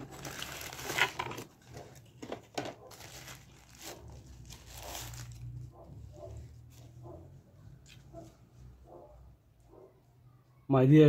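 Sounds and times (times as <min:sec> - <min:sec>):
packaging rustling and crinkling: 0:00.0 - 0:07.0.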